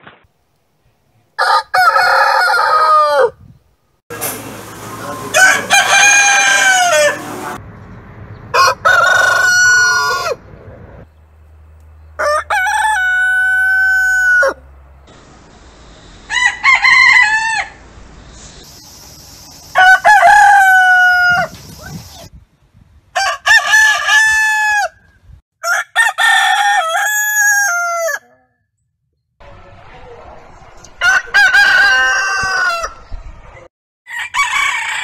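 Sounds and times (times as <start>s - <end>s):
roosters crowing: 1.4s - 3.4s, 5.1s - 7.6s, 8.5s - 10.5s, 12.0s - 14.7s, 16.3s - 17.9s, 19.7s - 22.2s, 23.1s - 28.2s, 31.0s - 33.1s, 34.1s - 35.0s.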